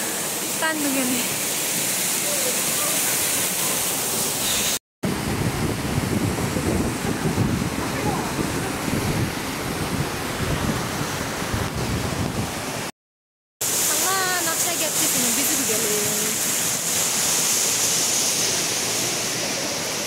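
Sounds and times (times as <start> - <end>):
waterfall rushing water: 0.0 - 5.3, 6.2 - 12.9, 13.6 - 20.0
wind buffeting microphone: 5.1 - 12.8.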